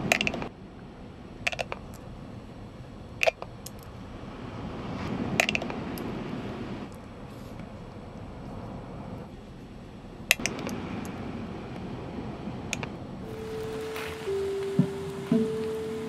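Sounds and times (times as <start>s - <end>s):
sea surf rushing: 10.6s - 16.0s.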